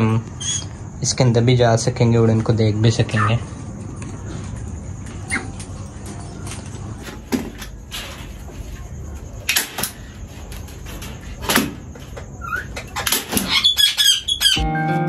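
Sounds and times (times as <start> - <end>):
high bird chirps: 12.4 - 15.0.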